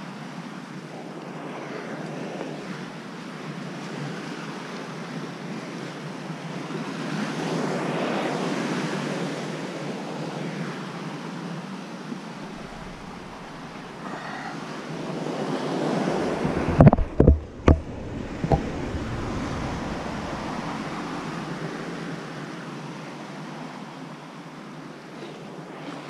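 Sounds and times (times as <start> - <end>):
wind on microphone: 12.3 - 23.1
ocean surf washing against rocks: 12.3 - 23.7.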